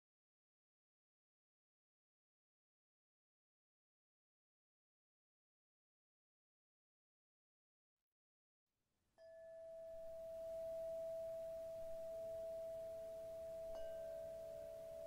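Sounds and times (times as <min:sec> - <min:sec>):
struck bell-like tones: 0:09.2 - 0:15.0.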